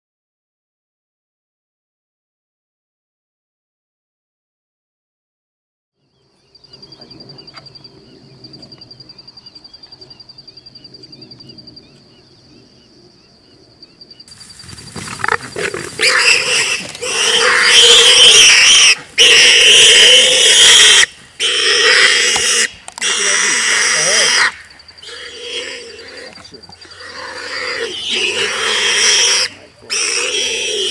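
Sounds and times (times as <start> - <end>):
warthog squealing in distress: 15.0 - 30.9.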